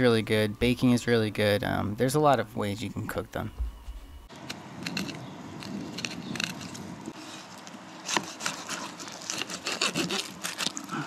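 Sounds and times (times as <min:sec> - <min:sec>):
knife scraping over fish bones: 0:04.8 - 0:11.0.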